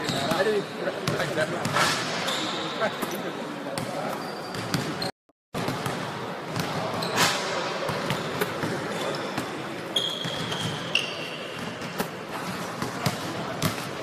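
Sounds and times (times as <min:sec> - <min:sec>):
short high squeaks: 0:10.0 - 0:11.5.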